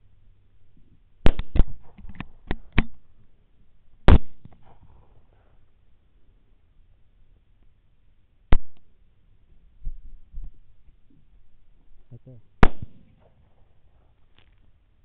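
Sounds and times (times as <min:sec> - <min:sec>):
loud rifle shots: 0:01.2 - 0:02.0, 0:04.1 - 0:04.6, 0:12.6 - 0:13.4
quieter sharp pops: 0:01.2 - 0:03.0, 0:04.1 - 0:05.0, 0:08.5 - 0:08.9, 0:12.6 - 0:13.5.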